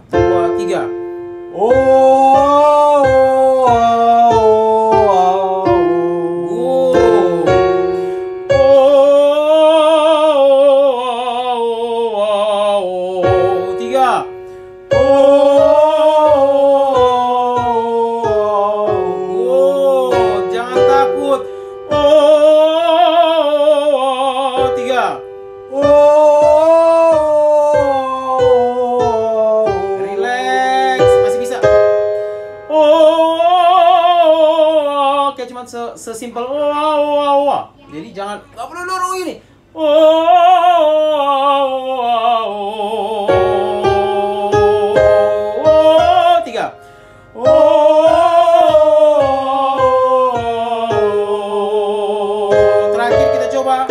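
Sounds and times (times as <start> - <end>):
accompanying instrument: 0.0 - 34.4
piano chords: 0.0 - 37.8, 39.4 - 53.9
voices singing warm-up vowels: 1.6 - 31.4, 39.7 - 46.8, 47.4 - 53.9.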